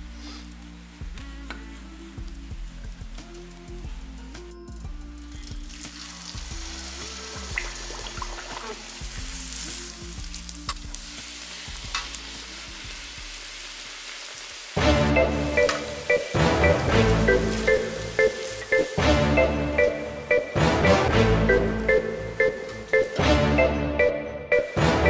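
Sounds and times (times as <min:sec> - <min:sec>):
background music: 0:00.0 - 0:14.1, 0:14.7 - 0:25.0
dough deep-frying in hot oil: 0:04.9 - 0:14.9.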